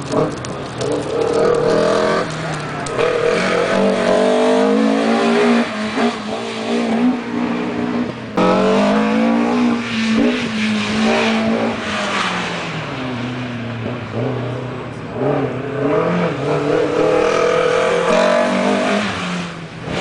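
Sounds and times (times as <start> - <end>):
car engine revving: 0.0 - 20.0.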